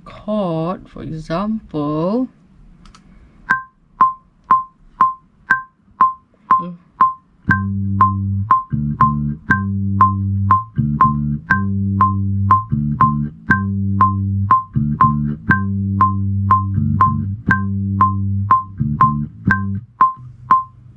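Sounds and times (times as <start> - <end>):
metronome clicking: 3.5 - 20.8
bass guitar low notes: 7.4 - 20.9.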